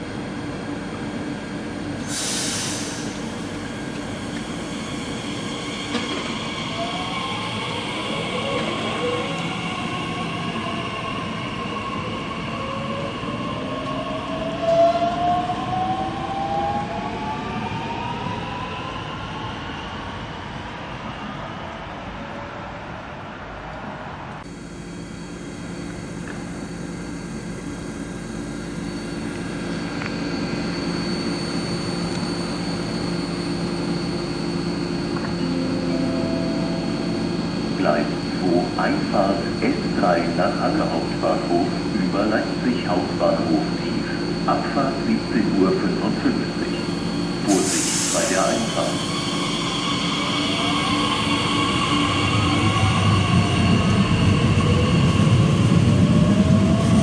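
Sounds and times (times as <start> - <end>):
passing train humming: 0.0 - 19.6, 20.3 - 57.0
air hiss: 2.0 - 3.5, 47.4 - 49.0.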